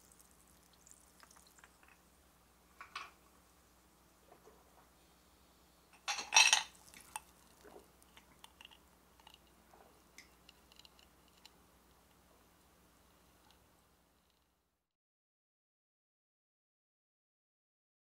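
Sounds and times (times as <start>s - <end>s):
ice clinking on glass: 6.0s - 7.4s.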